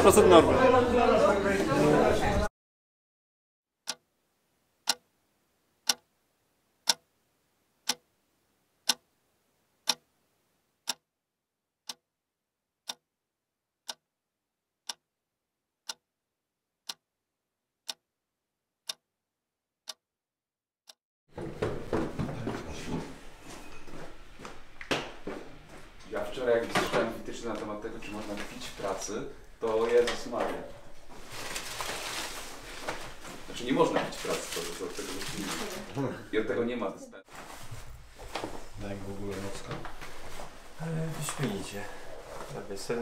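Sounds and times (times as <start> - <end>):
clock ticking: 3.8 - 4.0, 4.8 - 5.0, 5.8 - 6.1, 6.8 - 7.1, 7.8 - 8.0, 8.8 - 9.0, 9.8 - 10.0, 10.8 - 11.0, 11.8 - 12.0, 12.8 - 13.0, 14.8 - 15.0, 15.8 - 16.0, 16.8 - 17.0.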